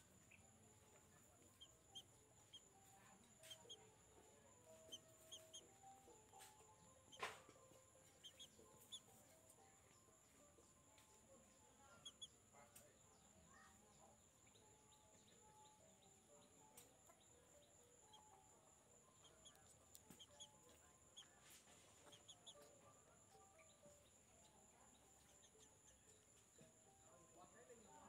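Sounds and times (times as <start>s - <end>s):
chick cheeping: 3.4s - 3.8s, 4.7s - 7.5s, 8.1s - 9.2s, 12.0s - 12.4s, 19.2s - 21.3s, 22.0s - 22.8s.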